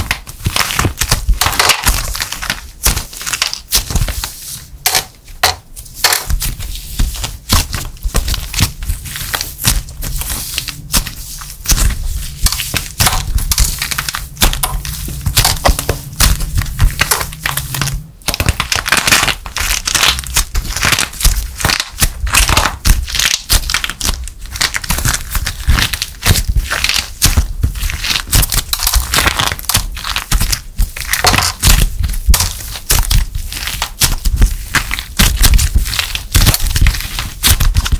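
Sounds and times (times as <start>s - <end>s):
dried clay crunching and crackling: 0.0s - 37.9s.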